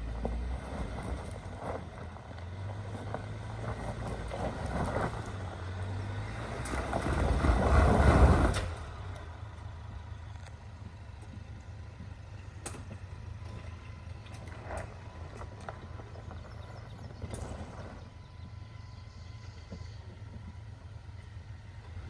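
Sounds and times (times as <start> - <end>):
truck engine under load: 0.0 - 22.0.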